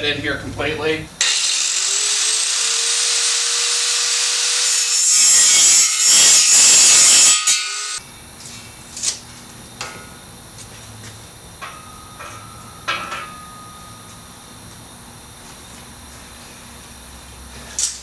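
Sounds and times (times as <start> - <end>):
angle grinder grinding steel: 1.2 - 8.0.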